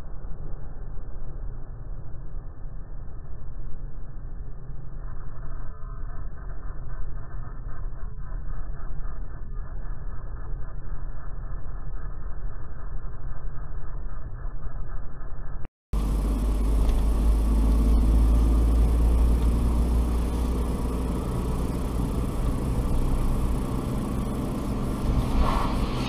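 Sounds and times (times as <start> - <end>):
car driving rumble inside cabin: 16.0 - 26.0
oncoming car passing: 16.0 - 26.0.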